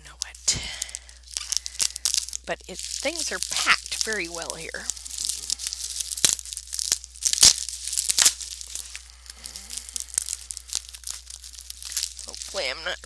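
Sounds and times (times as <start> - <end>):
plastic ripping: 0.0 - 13.0
plastic wrapping crinkling: 0.0 - 13.0.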